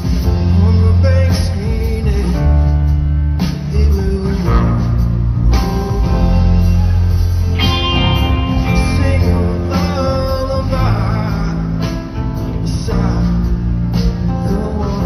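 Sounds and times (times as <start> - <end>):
bass guitar: 0.0 - 15.0
drums: 0.0 - 15.0
electric guitar lines: 7.5 - 10.1.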